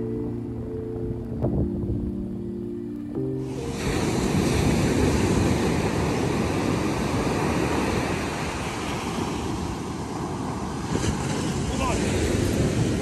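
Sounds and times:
wind buffeting the microphone: 0:01.2 - 0:02.2, 0:03.6 - 0:13.0
surf breaking on a beach: 0:03.4 - 0:13.0.

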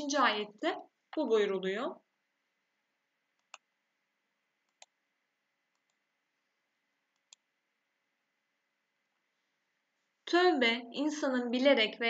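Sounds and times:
computer mouse clicks: 0:03.4 - 0:03.7, 0:04.6 - 0:05.0, 0:05.7 - 0:06.0, 0:07.1 - 0:07.5.

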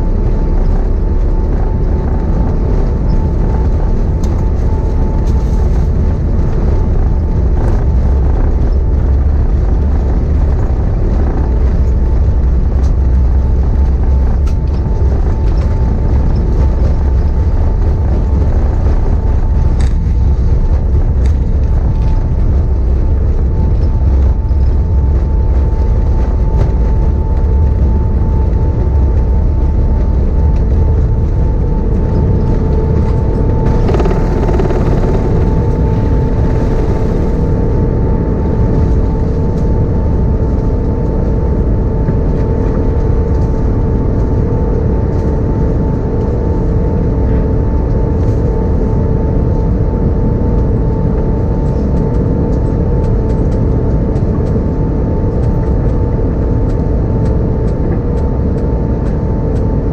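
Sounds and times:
jet engines roaring: 0:00.0 - 0:42.6
steady whine: 0:00.0 - 0:59.9.

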